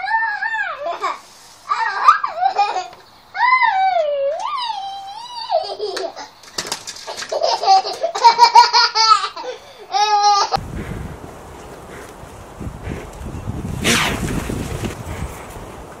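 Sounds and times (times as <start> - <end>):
toddler squealing and laughing: 0.0 - 6.4
wind rumbling on microphone: 10.6 - 16.0.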